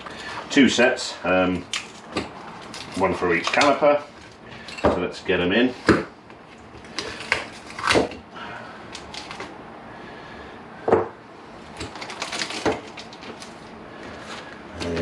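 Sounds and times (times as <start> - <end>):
parts knocking on wooden bench: 10.9 - 11.2.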